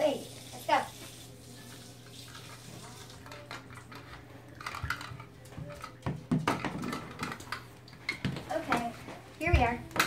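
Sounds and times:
dolls rustling and tapping: 0:03.4 - 0:10.0.

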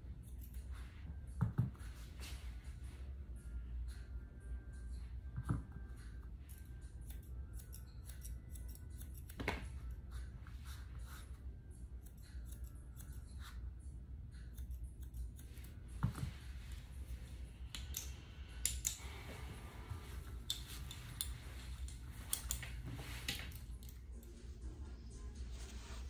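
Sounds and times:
steady low hum: 0:00.0 - 0:26.0
grooming shears snipping: 0:17.6 - 0:19.3, 0:19.9 - 0:24.3.

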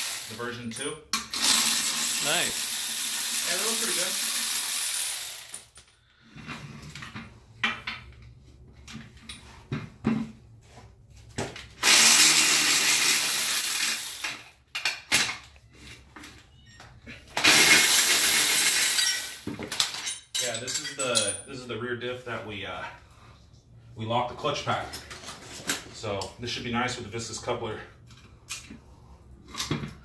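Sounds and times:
metallic clinks of tools: 0:18.8 - 0:21.6.

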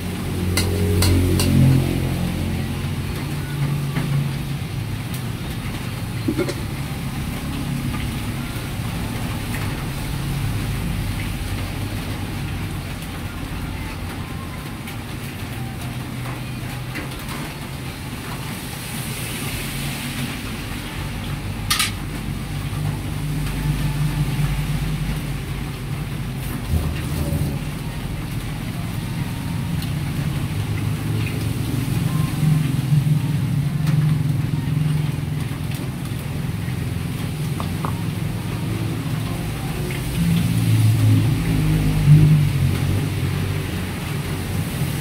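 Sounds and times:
kitchen background rumble: 0:20.3 - 0:45.0.

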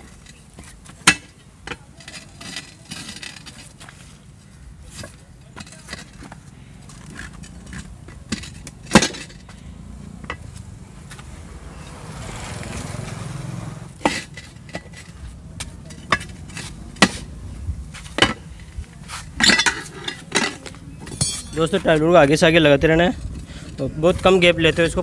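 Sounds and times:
low steady rumble: 0:04.2 - 0:23.5
tyre lever clinking on rim: 0:19.4 - 0:21.7.

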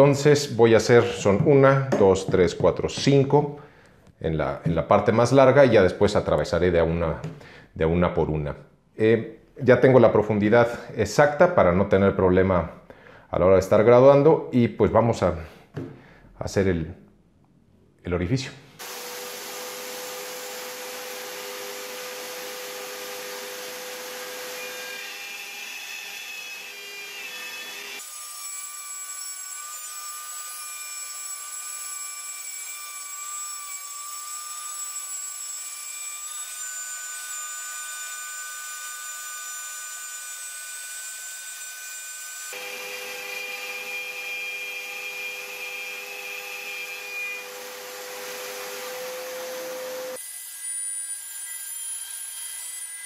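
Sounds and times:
router motor whine: 0:18.8 - 0:28.0, 0:42.5 - 0:50.2
router bit cutting wood: 0:18.8 - 0:53.0.

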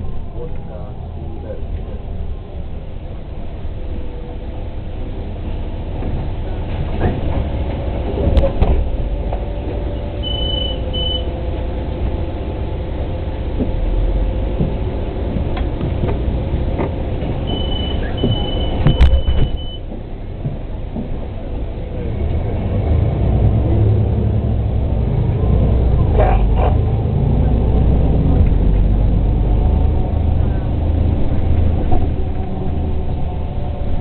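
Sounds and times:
bus engine idling: 0:00.0 - 0:34.0
short high beeps: 0:10.2 - 0:11.3, 0:17.5 - 0:19.8
bus door clunk: 0:14.5 - 0:21.3.

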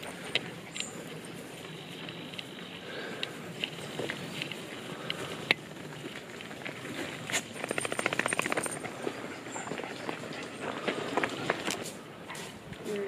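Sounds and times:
outdoor background noise: 0:00.0 - 0:13.0
fast even rattle: 0:07.3 - 0:09.0.

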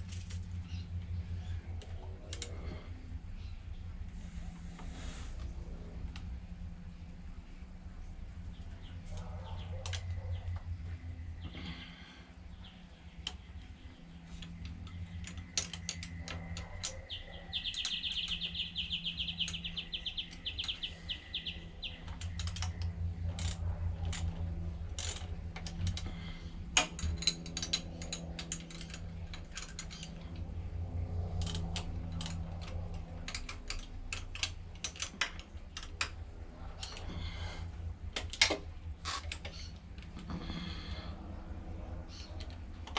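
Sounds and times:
socket ratchet clicking: 0:31.2 - 0:36.2.

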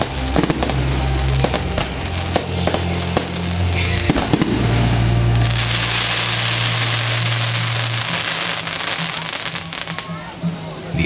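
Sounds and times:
low hum: 0:00.0 - 0:09.2
fireworks crackling and hissing: 0:00.0 - 0:10.8.

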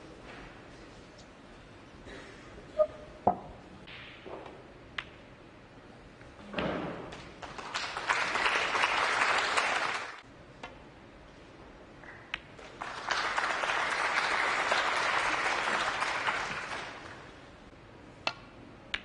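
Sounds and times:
audience applause: 0:07.4 - 0:10.2, 0:12.6 - 0:17.4.

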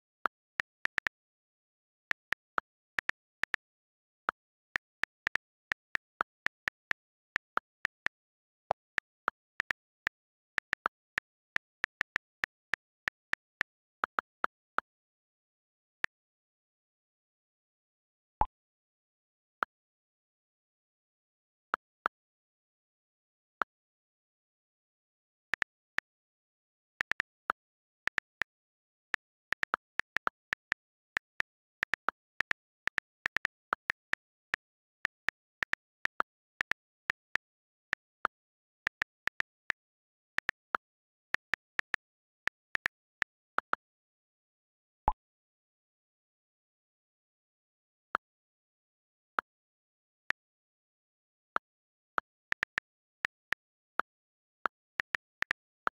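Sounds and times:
phone keyboard key clicks: 0:00.0 - 0:14.8, 0:25.6 - 0:26.7, 0:27.3 - 0:43.6.

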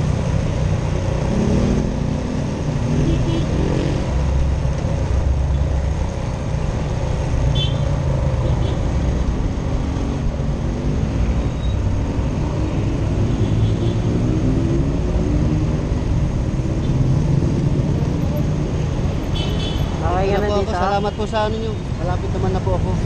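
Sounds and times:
road noise: 0:00.0 - 0:23.0.

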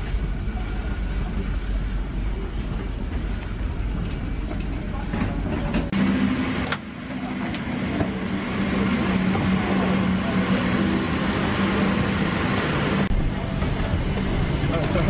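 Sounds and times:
constant low drone: 0:00.0 - 0:15.0.

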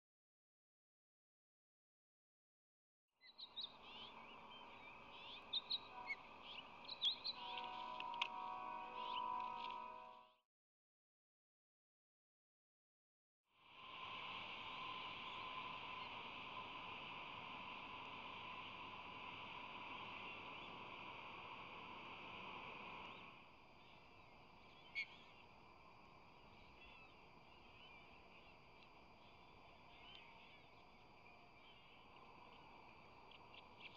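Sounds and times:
birds chirping: 0:03.2 - 0:08.1
faint outdoor noise: 0:03.2 - 0:10.4, 0:13.5 - 0:33.9
steady hum: 0:13.6 - 0:33.9.

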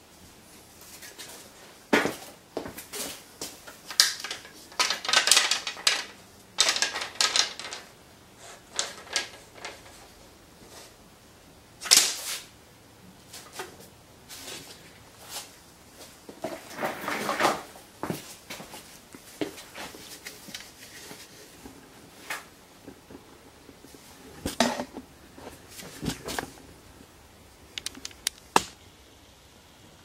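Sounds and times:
wooden balls clacking: 0:04.0 - 0:08.0, 0:08.7 - 0:10.0, 0:27.7 - 0:28.7.

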